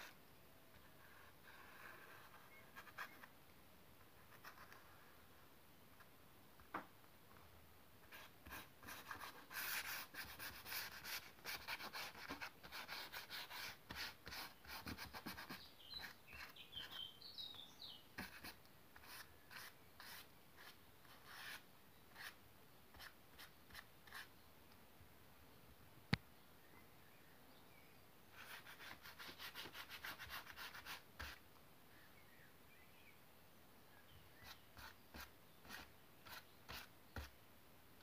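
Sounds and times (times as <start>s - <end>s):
brush rasping on paper: 18.2s - 21.6s, 34.4s - 37.3s.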